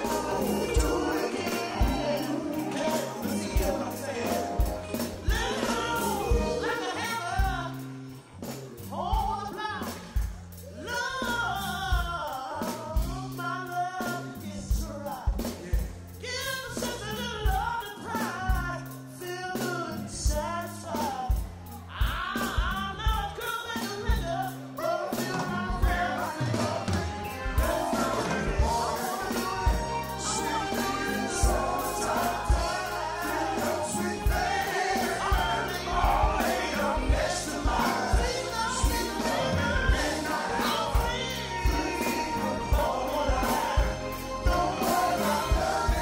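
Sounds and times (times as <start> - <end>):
voices singing: 0.0 - 10.0, 21.9 - 46.0
held bass notes: 0.0 - 12.3, 24.1 - 46.0
soul band playing: 0.0 - 46.0
steady drum beat: 0.0 - 46.0.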